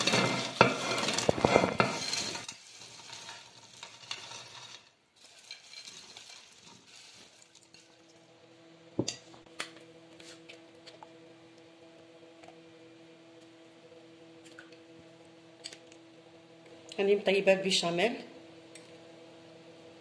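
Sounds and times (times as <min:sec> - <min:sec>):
rustling of food spread by hand: 0:00.0 - 0:08.1
faint steady hum: 0:05.5 - 0:20.0.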